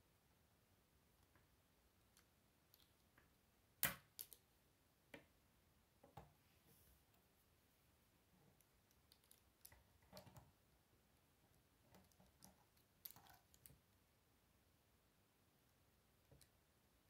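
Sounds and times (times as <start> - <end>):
plastic pieces clicking together: 3.8 - 4.4.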